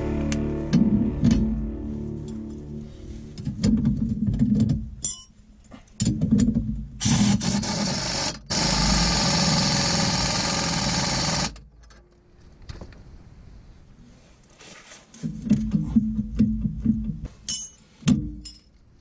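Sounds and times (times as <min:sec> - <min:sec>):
power ratchet spinning nut: 0:07.0 - 0:11.6.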